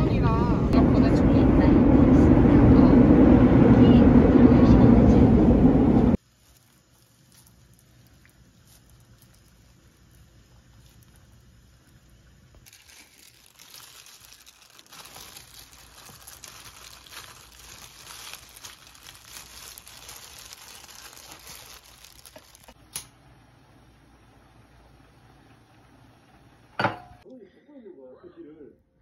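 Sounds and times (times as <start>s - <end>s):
plastic gloves crinkling: 6.2s - 22.8s.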